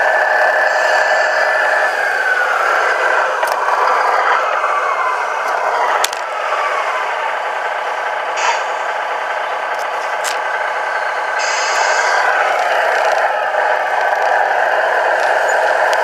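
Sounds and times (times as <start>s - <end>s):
model vehicle motor whirring: 11.4s - 16.0s.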